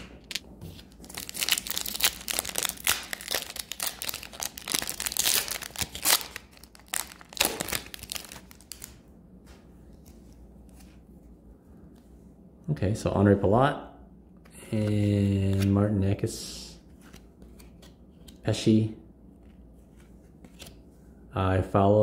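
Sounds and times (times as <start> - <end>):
foil wrapper tearing and crinkling: 1.0 - 8.9.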